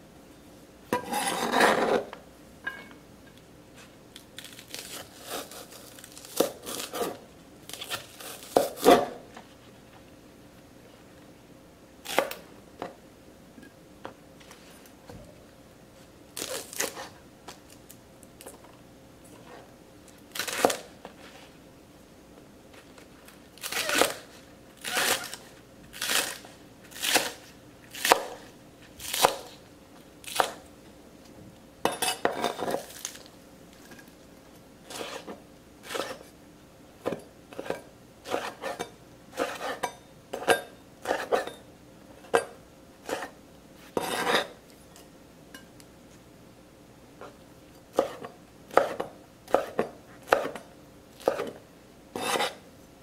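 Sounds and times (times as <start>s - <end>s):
knife chopping on plastic board: 47.9s - 50.6s, 51.2s - 51.6s.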